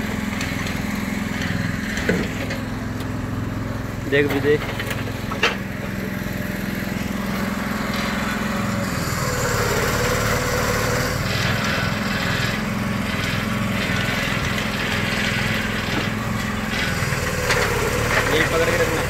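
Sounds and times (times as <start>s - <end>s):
small engine running: 0.0s - 19.0s.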